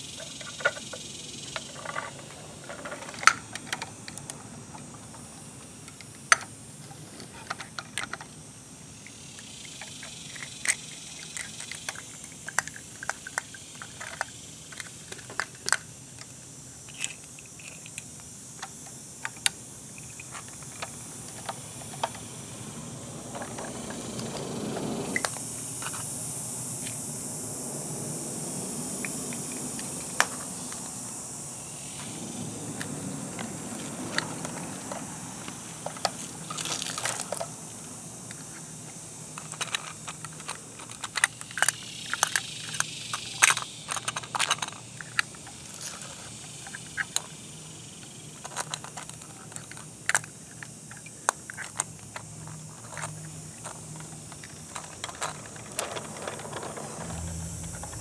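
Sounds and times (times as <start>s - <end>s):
steady high hiss: 0.0s - 58.0s
plastic toy clicks and clacks: 9.7s - 22.2s, 35.8s - 37.5s, 39.4s - 47.3s, 48.4s - 58.0s
rushing noise: 55.4s - 58.0s.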